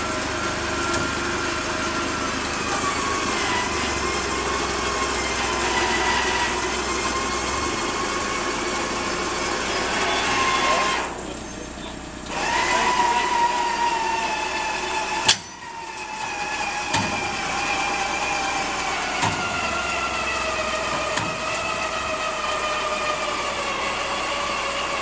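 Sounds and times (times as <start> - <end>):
forklift engine and hydraulics whine: 0.0 - 25.0
metal clanking: 15.2 - 17.4.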